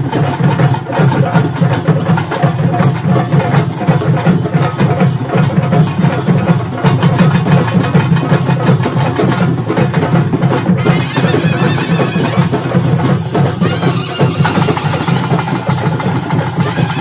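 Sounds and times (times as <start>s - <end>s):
fast barrel drumming: 0.0s - 17.0s
reedy wind instrument: 10.7s - 17.0s.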